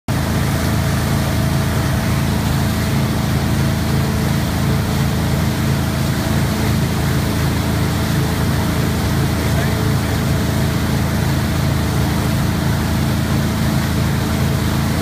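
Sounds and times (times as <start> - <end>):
boat engine running steadily: 0.1 - 15.0
churning wake rushing: 0.1 - 15.0.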